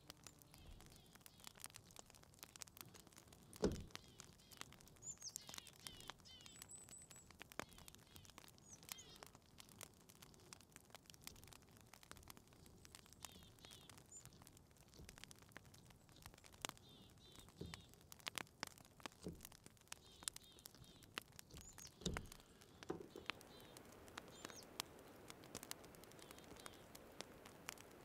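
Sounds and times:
small bird chirping: 0:00.1 - 0:01.8, 0:03.5 - 0:09.4, 0:12.8 - 0:14.5, 0:15.8 - 0:18.0, 0:19.9 - 0:28.0
bird skin tearing: 0:20.3 - 0:23.4.

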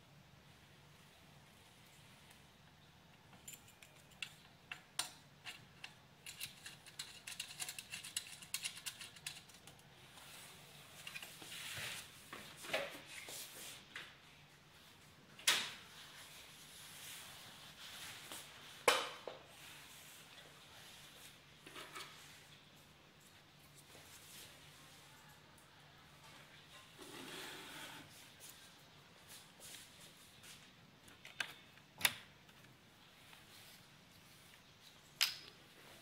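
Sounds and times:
metal connectors clicking and rattling: 0:03.1 - 0:09.9.

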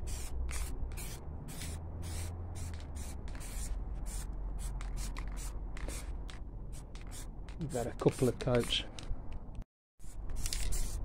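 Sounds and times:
aerosol spray can hissing: 0:00.0 - 0:06.1.

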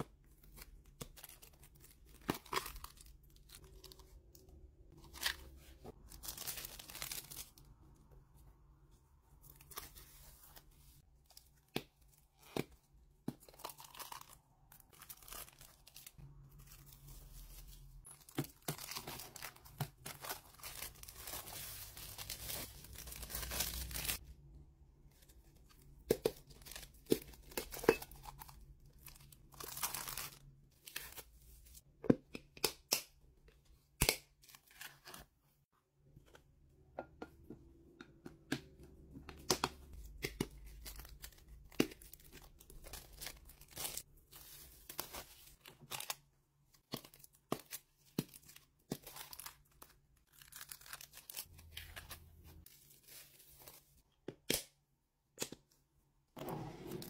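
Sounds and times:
plastic wrap crinkling and tearing: 0:05.1 - 0:07.7, 0:13.5 - 0:24.2, 0:46.9 - 0:53.7.

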